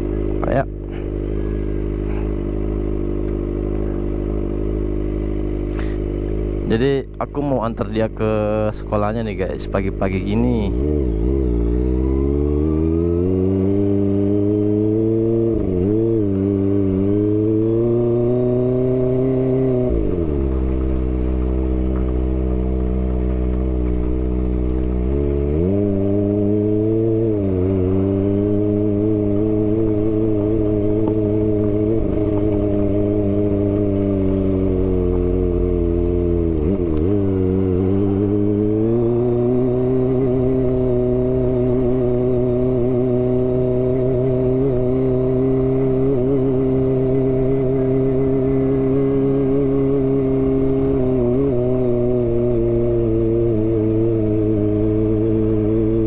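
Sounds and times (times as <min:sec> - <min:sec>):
motorcycle engine revving: 0:00.0 - 0:56.0.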